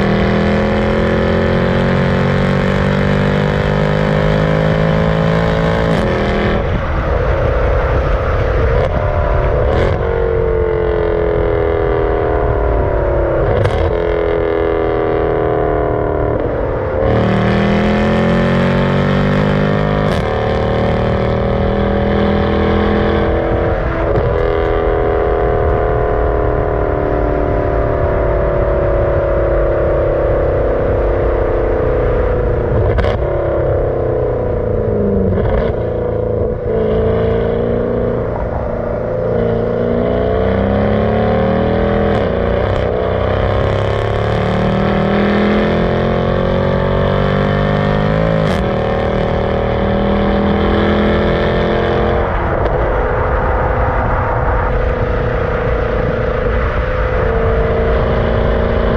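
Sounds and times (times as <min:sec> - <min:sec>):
car engine running: 0:31.0 - 0:58.9.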